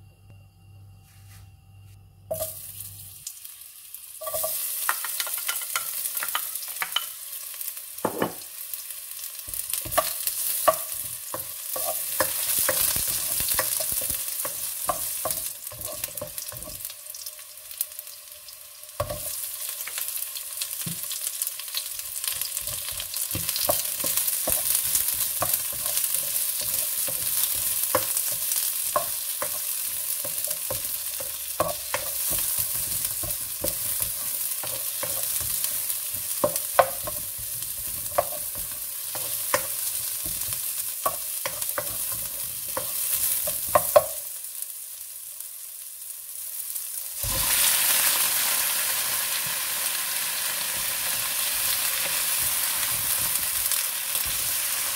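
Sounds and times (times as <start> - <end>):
onion sizzling in hot oil: 2.3 - 54.9
spatula scraping wok: 22.3 - 44.0, 50.4 - 54.9.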